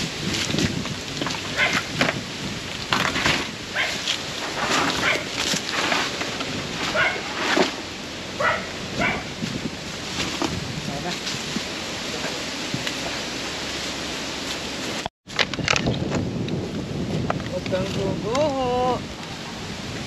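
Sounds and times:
dog barking: 1.5s - 1.8s, 3.7s - 4.0s, 5.0s - 5.3s, 6.9s - 7.2s, 8.4s - 9.3s.

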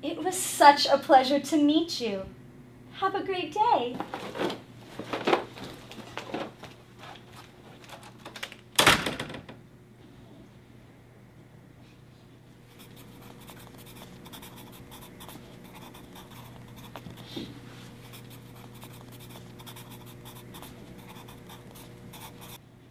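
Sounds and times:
steady low hum: 0.0s - 8.2s, 9.6s - 22.9s
faint scratching: 12.7s - 22.6s.

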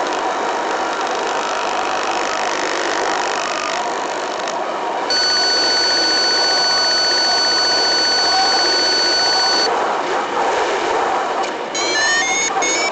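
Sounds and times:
high-pitched electronic tone: 5.1s - 9.7s.

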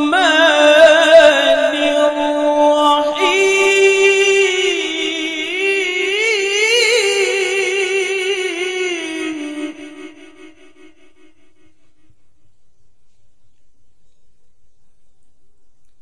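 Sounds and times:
man reciting melodically into microphone: 0.0s - 11.8s.

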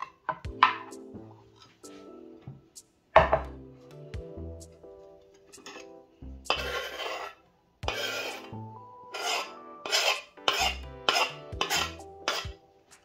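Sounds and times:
background music sustained tones: 0.0s - 13.0s
food grated on metal grater: 6.5s - 8.5s, 9.1s - 12.6s.

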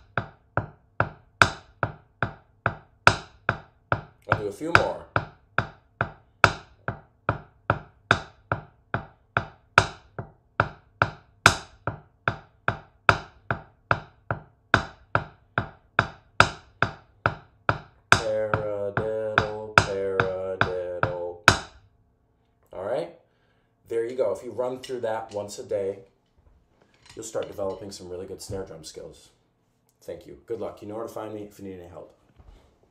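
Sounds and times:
drumsticks tapping practice pad: 0.0s - 21.8s.

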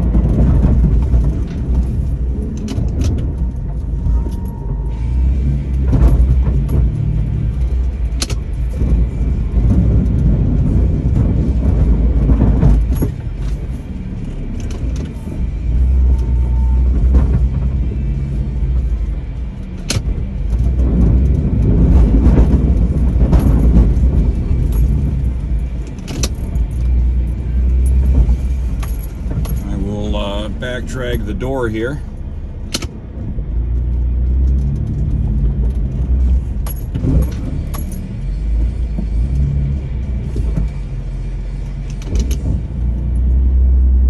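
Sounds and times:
engine and drivetrain rumble: 0.0s - 44.0s
keys jangling: 36.6s - 38.3s.

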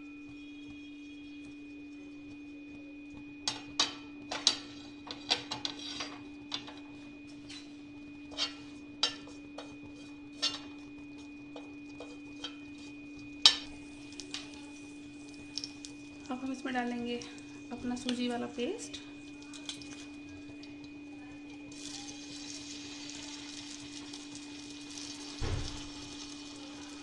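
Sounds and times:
steady low hum: 0.0s - 27.0s
seeds spluttering in hot oil: 8.3s - 27.0s.

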